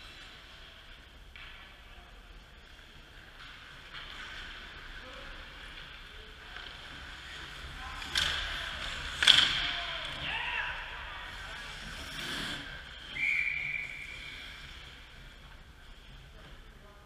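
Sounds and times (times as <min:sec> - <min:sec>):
ice skate blades scraping ice: 0:11.3 - 0:13.2.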